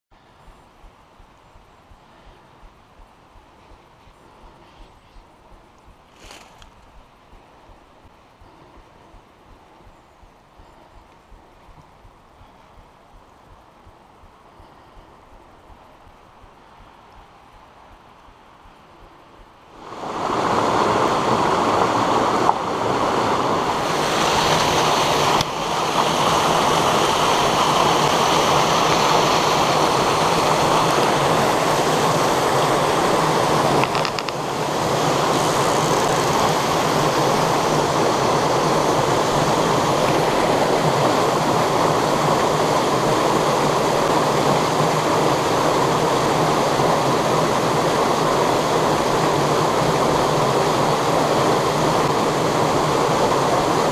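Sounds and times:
stream rushing over rocks: 19.6 - 53.9.

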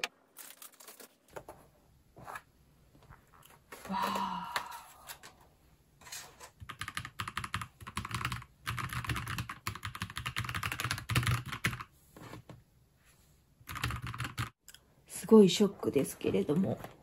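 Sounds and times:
mechanical keyboard typing: 6.6 - 11.9, 13.6 - 14.6.

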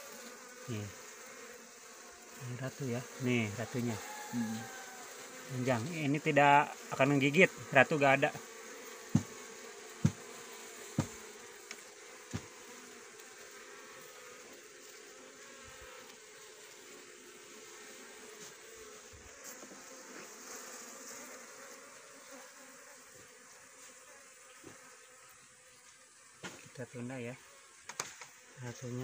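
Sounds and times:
honey bees buzzing: 0.0 - 29.0
sharp knocks: 9.1 - 9.4, 10.0 - 10.2, 11.0 - 11.2.

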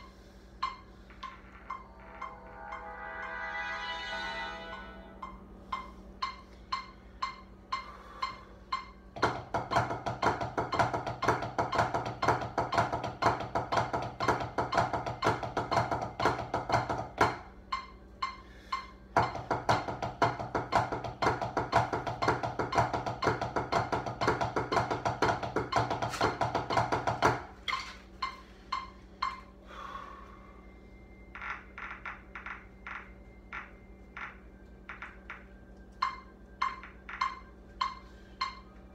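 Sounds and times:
drumsticks striking a practice pad: 5.8 - 18.4, 19.1 - 27.6.

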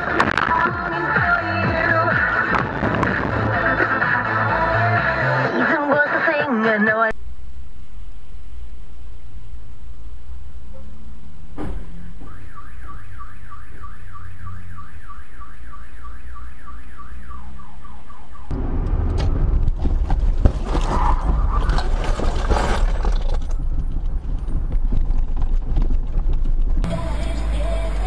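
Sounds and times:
car alarm siren: 11.9 - 18.5
knocks and clatter: 18.5 - 26.9.

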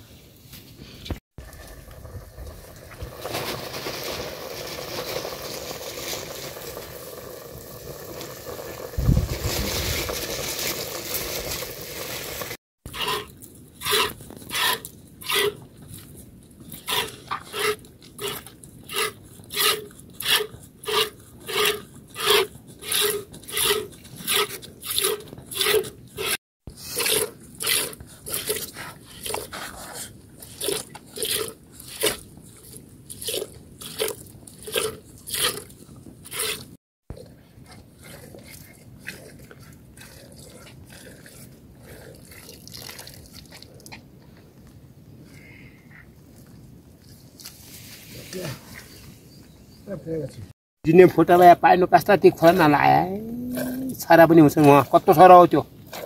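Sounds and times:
pot hissing on fire: 1.4 - 12.6
milk squirting into bucket: 42.2 - 43.7.

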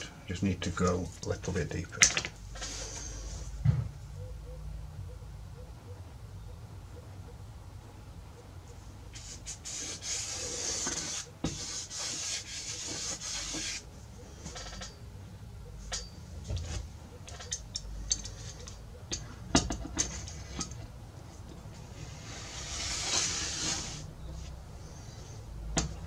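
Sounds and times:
hand scraping wood: 2.5 - 3.6, 9.2 - 15.0, 21.4 - 26.0.

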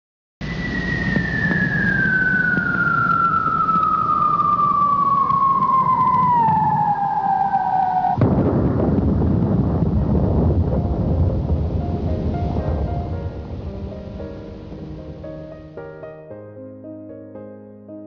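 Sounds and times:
fire truck siren wailing: 0.4 - 8.2.

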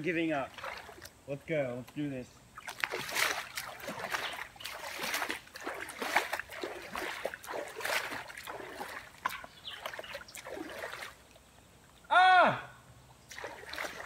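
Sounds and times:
hands splashing water: 0.5 - 1.1, 2.6 - 11.4, 13.3 - 14.0.

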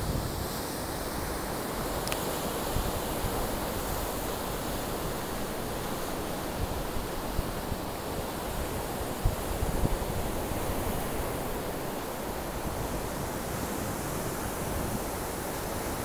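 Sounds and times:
wind buffeting microphone: 0.0 - 0.7.

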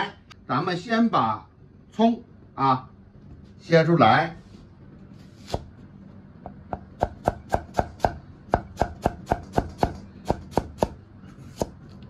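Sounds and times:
knife chopping on wooden block: 6.7 - 11.8.

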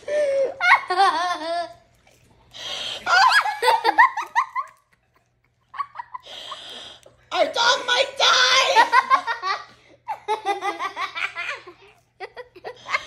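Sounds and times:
children laughing: 0.0 - 1.8, 3.0 - 6.3, 8.5 - 13.0.

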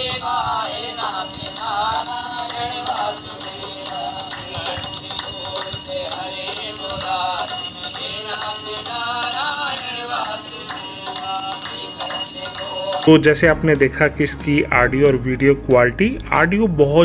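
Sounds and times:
man singing devotional song: 0.0 - 17.0.

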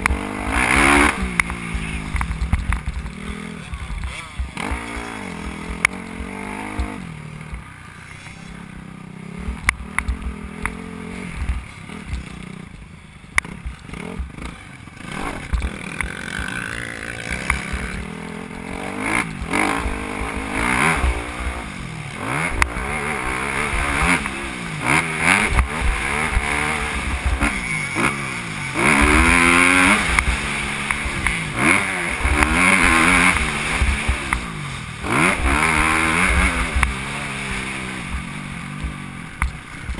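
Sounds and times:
sharp clicks and knocks: 0.0 - 6.0, 9.5 - 10.8, 38.7 - 39.9
motocross bike engine revving: 0.0 - 39.9.

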